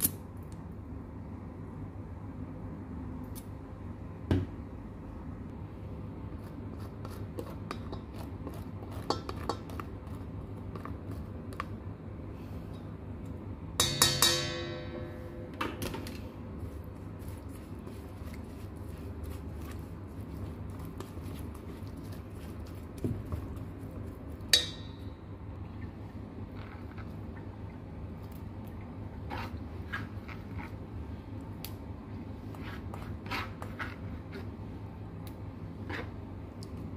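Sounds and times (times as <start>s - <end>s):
metal bowl ringing when struck: 13.8s - 15.6s.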